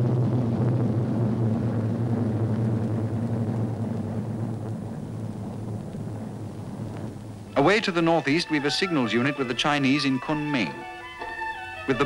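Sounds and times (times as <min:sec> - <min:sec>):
propeller aircraft engine drone: 0:00.0 - 0:07.6.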